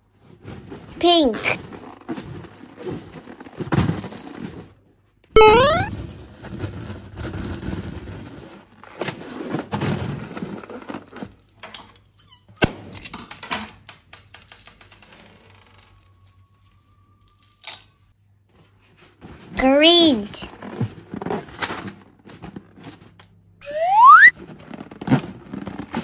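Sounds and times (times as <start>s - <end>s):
rubber balloon squeaking: 5.4s - 6.0s, 23.6s - 25.8s.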